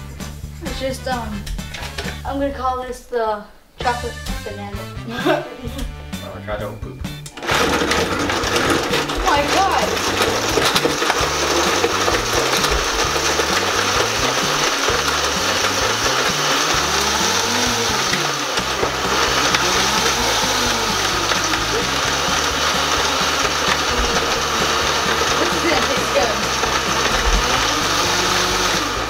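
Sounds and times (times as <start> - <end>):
blender running at high speed: 7.3 - 29.0.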